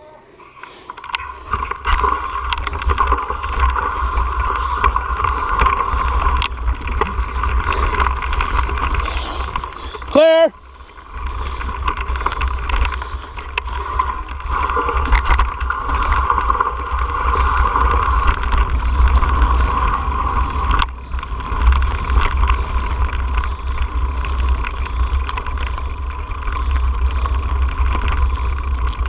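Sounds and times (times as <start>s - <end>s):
bike tyres rolling over rock: 0.4s - 29.0s
bike rattling with sharp knocks: 1.4s - 10.5s, 11.1s - 29.0s.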